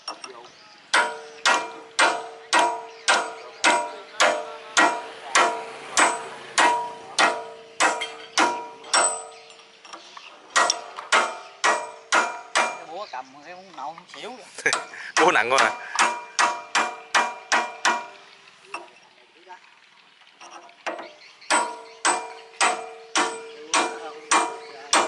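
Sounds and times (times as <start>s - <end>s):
hammer striking steel punch: 0.9s - 9.5s, 10.6s - 13.0s, 14.7s - 18.2s, 20.9s - 25.0s.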